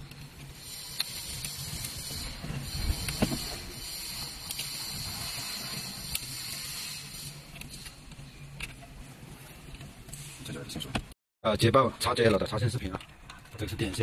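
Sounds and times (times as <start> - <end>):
steady hiss: 0.1 - 8.6.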